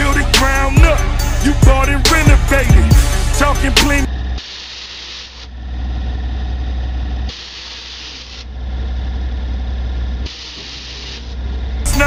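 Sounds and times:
steady low hum: 0.0 - 12.0
air hissing from suspension bags: 7.3 - 8.5, 10.3 - 11.4.

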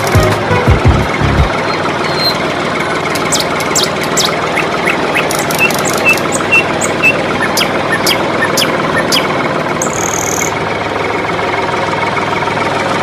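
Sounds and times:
birds chirping: 1.5 - 10.6
toy tractor motor running: 1.6 - 11.4.

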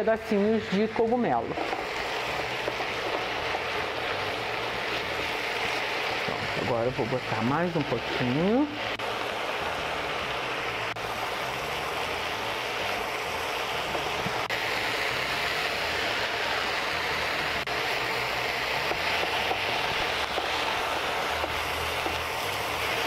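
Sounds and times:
mushrooms sizzling in a wok: 0.0 - 23.0
spatula stirring in a wok: 0.5 - 15.6, 17.6 - 23.0.

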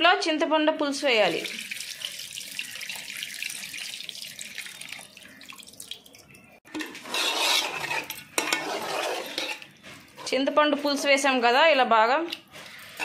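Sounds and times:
liquid trickling into a pot: 1.0 - 10.2.

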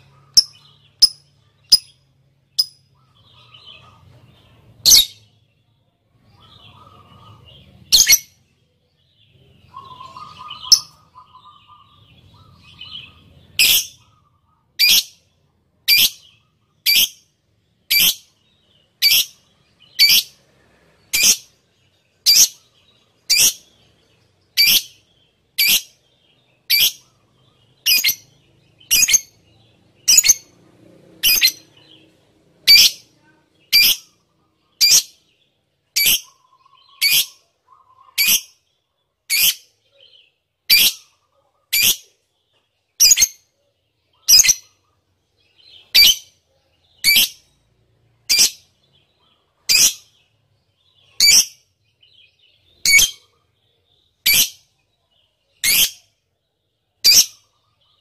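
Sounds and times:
lovebird chatter: 0.0 - 5.3, 6.3 - 8.4, 9.5 - 17.3, 21.1 - 30.5, 31.2 - 42.2, 43.0 - 43.4, 44.2 - 47.6, 48.3 - 56.1
shrill bird call: 9.7 - 15.2.

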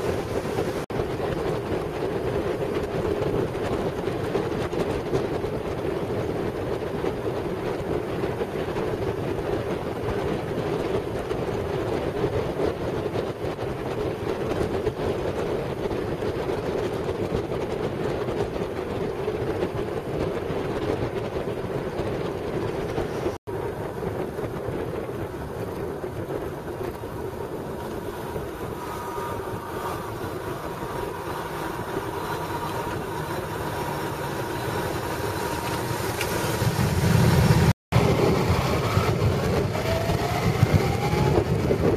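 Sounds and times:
wind and road noise on motorcycle: 0.0 - 41.9.

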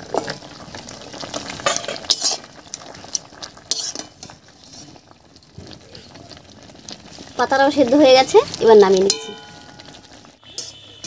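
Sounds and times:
water boiling hiss: 0.0 - 11.0
metal spatula clinking in pan: 1.6 - 2.4, 3.7 - 4.3, 9.1 - 10.9.

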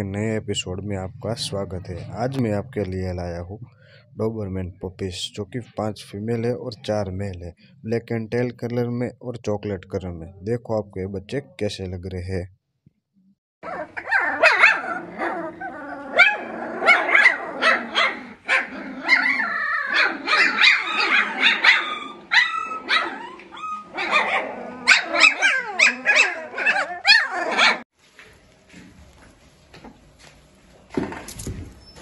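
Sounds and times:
puppies crying and barking: 13.6 - 27.9.

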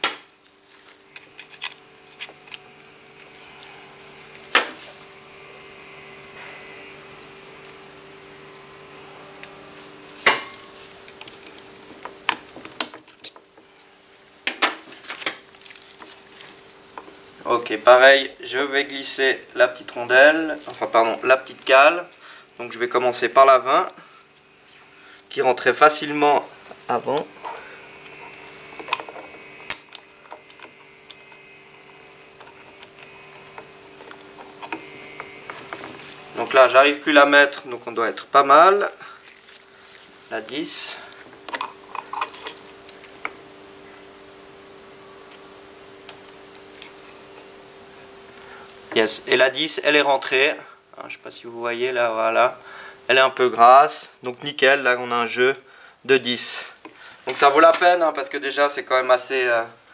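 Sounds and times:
steady low hum: 0.0 - 59.9
metal tools clinking: 1.1 - 2.7, 41.5 - 42.6.

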